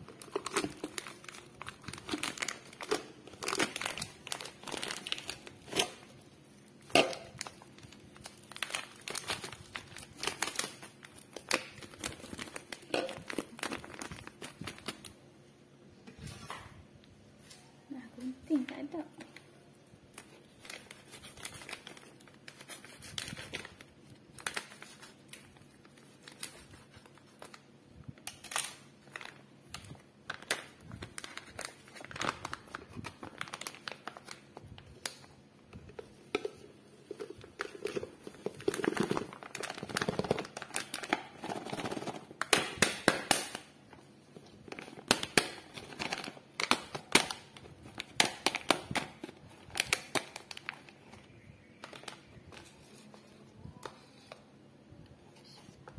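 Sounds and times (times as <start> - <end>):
plastic bag crinkling: 0.0 - 15.2, 20.1 - 43.7.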